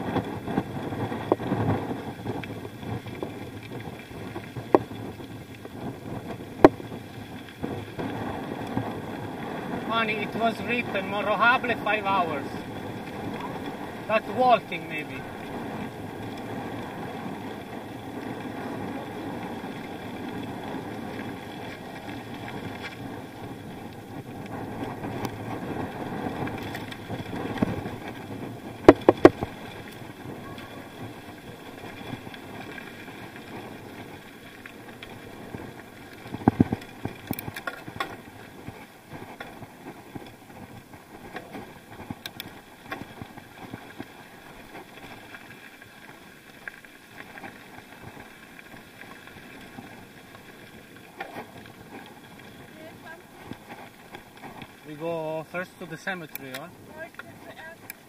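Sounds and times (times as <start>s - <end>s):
bicycle knocking and rattling: 0.0s - 58.0s
bicycle tires rolling: 0.0s - 58.0s.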